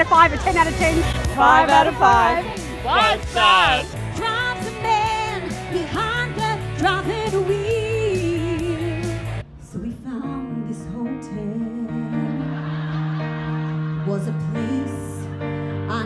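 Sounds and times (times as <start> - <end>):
woman singing pop song: 0.0 - 2.5, 4.1 - 12.6, 14.0 - 16.0
band with steady beat: 0.3 - 5.5
slow soft song: 1.1 - 16.0.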